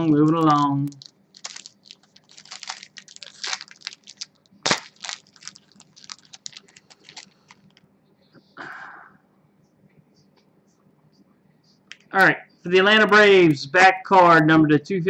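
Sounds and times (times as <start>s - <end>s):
card packaging crinkling: 0.0s - 7.8s.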